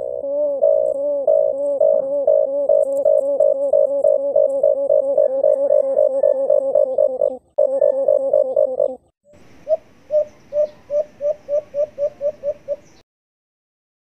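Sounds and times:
dove hooting calls: 0:00.0 - 0:13.0
faint hiss: 0:09.3 - 0:13.0.

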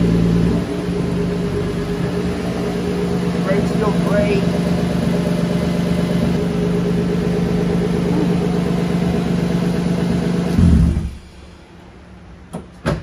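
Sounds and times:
car engine idling: 0:00.0 - 0:11.7
engine shudder stopping: 0:04.6 - 0:11.6.

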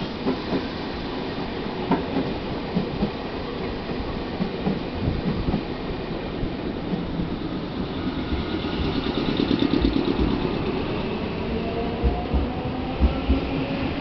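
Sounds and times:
train rumble: 0:00.0 - 0:14.0
train pulling away: 0:07.0 - 0:14.0
train wheels clacking over rail joints: 0:08.0 - 0:10.9.

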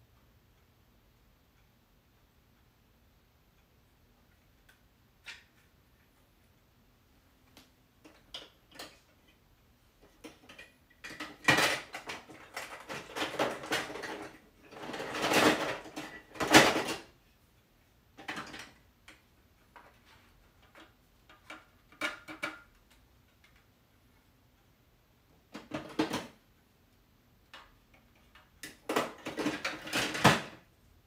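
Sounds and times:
plastic pieces clattering: 0:10.5 - 0:17.0.

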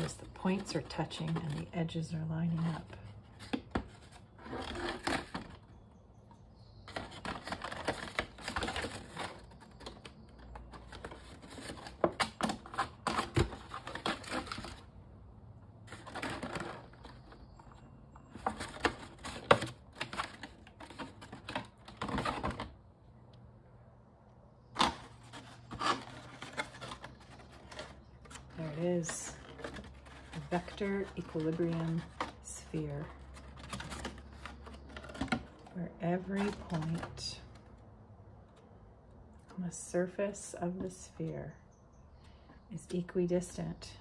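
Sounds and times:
paper plates rustling: 0:00.0 - 0:05.8, 0:06.8 - 0:14.9, 0:15.9 - 0:17.4, 0:18.3 - 0:22.7, 0:24.8 - 0:37.6.

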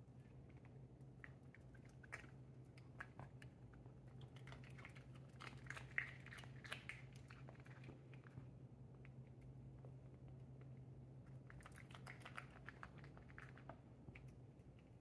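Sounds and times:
cat chewing and crunching: 0:00.0 - 0:15.0
steady low hum: 0:00.0 - 0:15.0.

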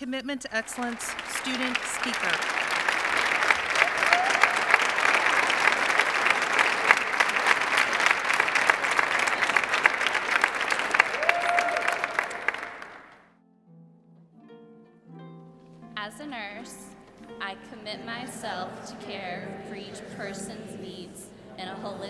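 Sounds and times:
audience applauding: 0:00.4 - 0:13.3
soft music: 0:13.4 - 0:22.0.

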